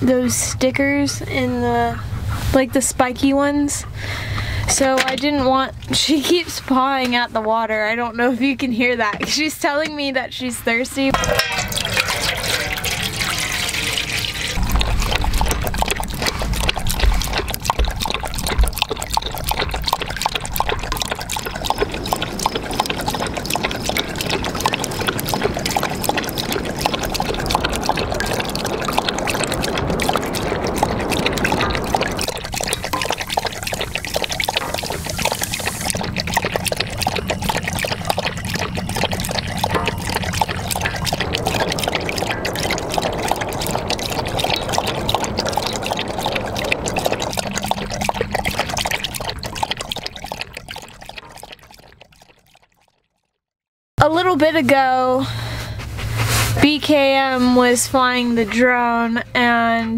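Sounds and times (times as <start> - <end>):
water pouring into metal bowl: 11.1 - 53.3.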